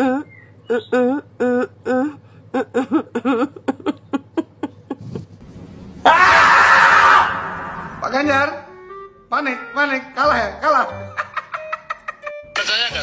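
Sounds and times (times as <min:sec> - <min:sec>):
woman laughing: 0:00.0 - 0:05.3, 0:11.1 - 0:12.3.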